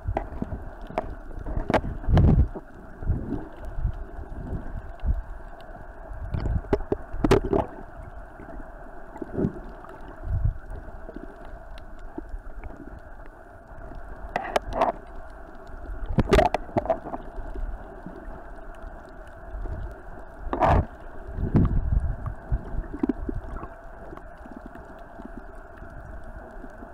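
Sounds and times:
underwater thumps and sloshing: 0.0 - 3.5, 6.3 - 7.8, 16.0 - 17.2, 20.5 - 23.7.

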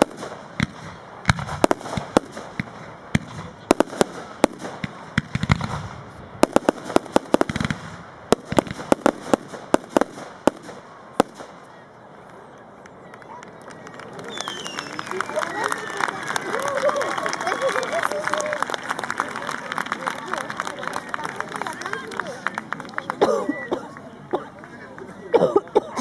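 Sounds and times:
fireworks bangs: 0.0 - 12.4, 13.6 - 23.2.

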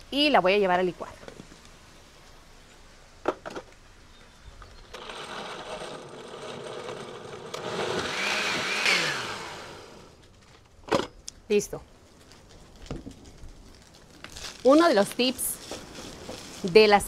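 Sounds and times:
electric blender running: 5.0 - 10.2.

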